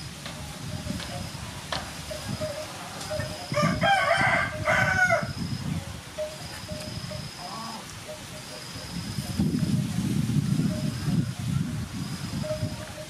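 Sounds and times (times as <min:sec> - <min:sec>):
rooster crowing: 0:03.5 - 0:05.4.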